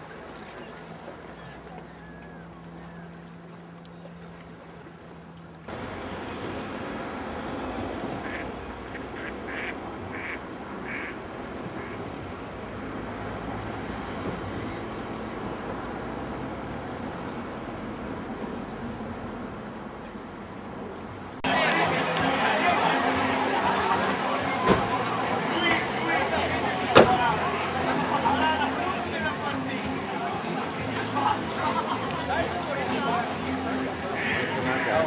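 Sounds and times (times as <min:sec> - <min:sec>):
ducks quacking: 0:08.2 - 0:11.2, 0:11.8 - 0:12.1, 0:21.4 - 0:35.0.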